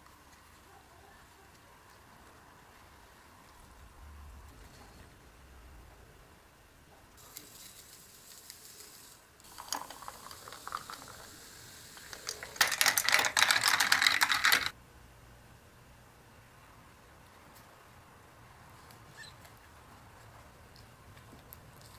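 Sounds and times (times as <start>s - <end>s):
drink fizzing and crackling: 7.2s - 14.8s
powder shaken into a glass: 7.5s - 11.4s, 12.0s - 14.7s
liquid pouring: 9.4s - 14.7s.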